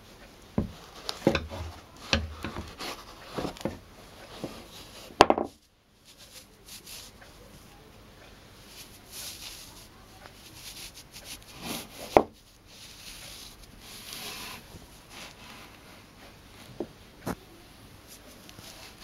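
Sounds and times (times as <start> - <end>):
socked feet rubbing together: 0.6 - 5.2, 8.6 - 17.4
sharp knock on wooden chair: 5.2 - 5.6.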